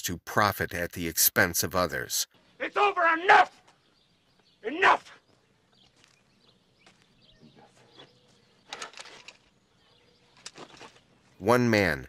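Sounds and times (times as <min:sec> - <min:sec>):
faint bird chirps: 0:03.5 - 0:11.4.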